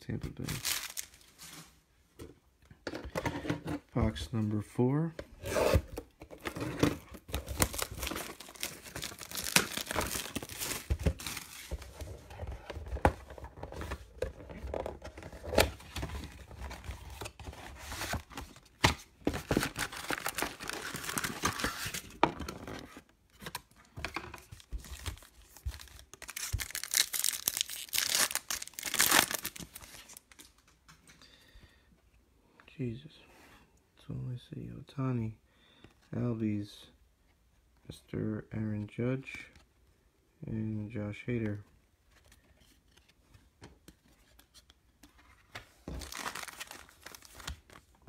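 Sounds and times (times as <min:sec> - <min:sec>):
plastic wrap crinkling: 0:00.4 - 0:01.5, 0:07.3 - 0:11.7, 0:24.6 - 0:30.6, 0:45.9 - 0:48.0.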